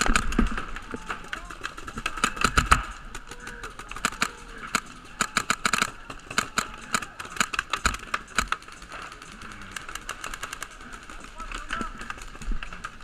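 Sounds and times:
paintball marker firing: 0.0 - 8.8.

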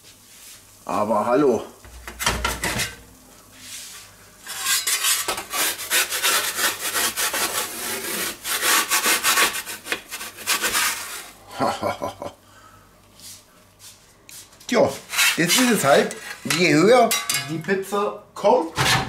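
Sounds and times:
metal peels scraping on stone: 4.4 - 9.6, 15.1 - 17.6.

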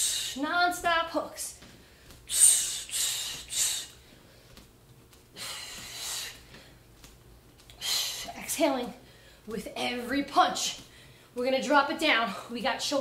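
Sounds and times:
woman's hissing exhales: 2.3 - 4.0.

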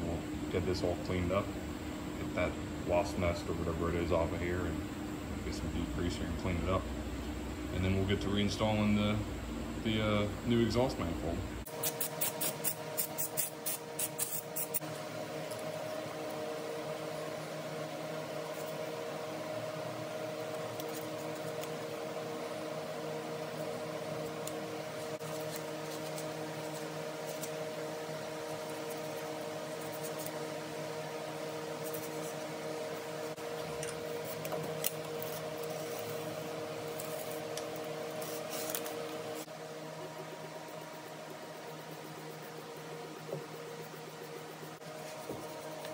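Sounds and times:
steady hum: 0.0 - 45.9.

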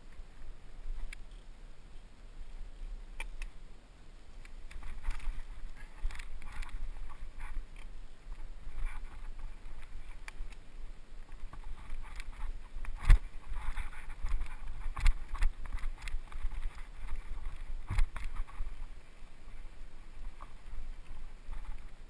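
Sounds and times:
wind rumble on microphone: 0.0 - 22.0
bike rattling over bumps: 4.7 - 10.5, 11.2 - 19.6.

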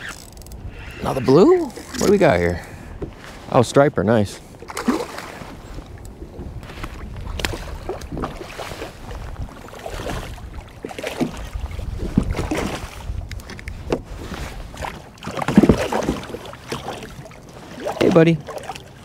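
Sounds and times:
wind on microphone: 0.0 - 3.2, 5.4 - 15.8
water slapping against kayak hull: 4.6 - 19.0
knocks from boat: 14.8 - 17.1.

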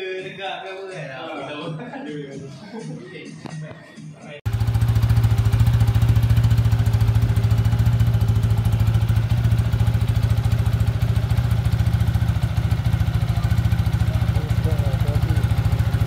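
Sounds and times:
motorcycle engine idling: 4.5 - 16.0.

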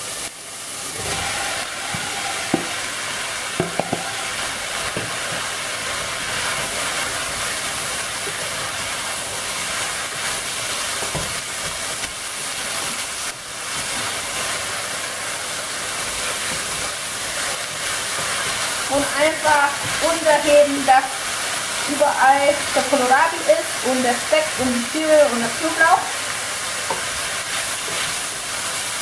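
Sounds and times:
food sizzling in a pot: 0.0 - 29.0
wooden spoon stirring: 0.9 - 7.5.

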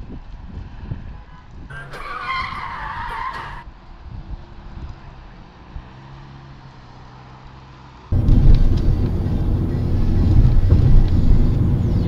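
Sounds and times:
road and engine rumble: 0.0 - 12.0
in-cabin engine hum: 8.1 - 12.0.

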